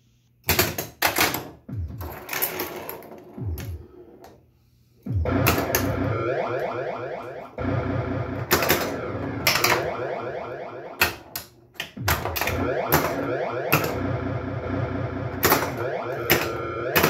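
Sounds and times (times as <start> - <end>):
pinball electronic sound effects: 5.1 - 17.0
pinball mechanical clatter: 8.4 - 10.0, 15.3 - 17.0.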